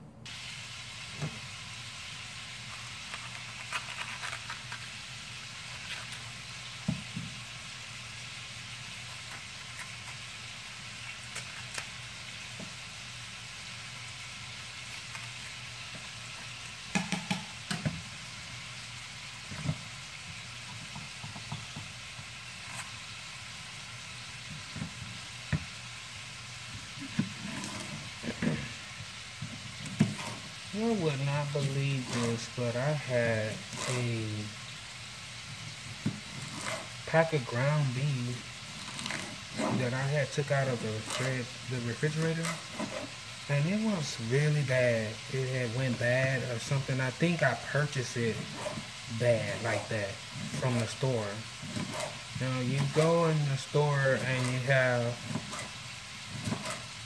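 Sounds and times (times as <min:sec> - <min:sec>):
meat sizzling in a pan: 0:00.3 - 0:57.0
knife chopping on cutting board: 0:16.9 - 0:18.0, 0:51.7 - 0:52.2, 0:56.4 - 0:56.9.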